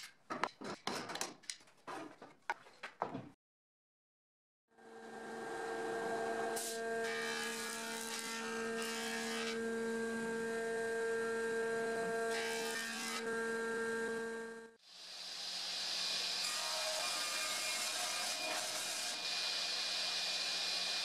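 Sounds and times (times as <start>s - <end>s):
wood being cut hissing: 14.9s - 16.4s.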